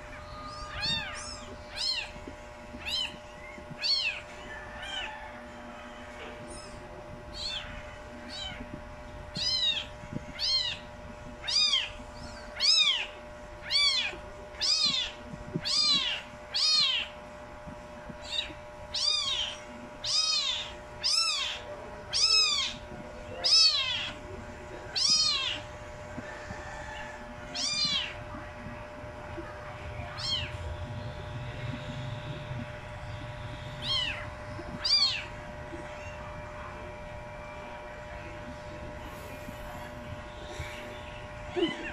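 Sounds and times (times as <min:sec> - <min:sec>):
kittens meowing: 0:00.0 - 0:05.2, 0:06.5 - 0:08.8, 0:09.4 - 0:17.2, 0:18.1 - 0:24.2, 0:24.8 - 0:28.7, 0:29.4 - 0:30.7, 0:31.6 - 0:36.4, 0:41.5 - 0:41.9.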